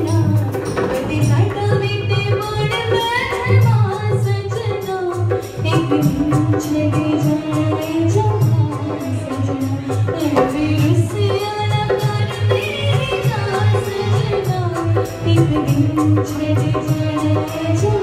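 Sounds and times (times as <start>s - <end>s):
girl singing into a microphone: 0.0s - 18.0s.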